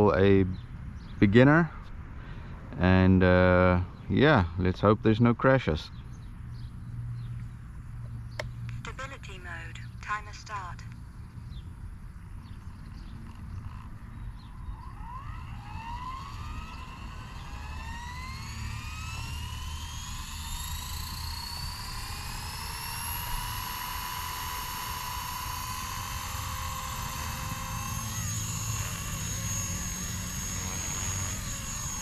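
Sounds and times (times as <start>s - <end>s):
low steady rumble: 0.0s - 32.0s
rc helicopter motor whine: 12.4s - 32.0s.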